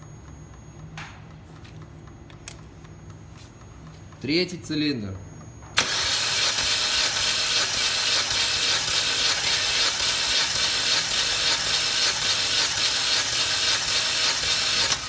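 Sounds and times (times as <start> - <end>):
engine cranking by starter motor: 5.8 - 15.0.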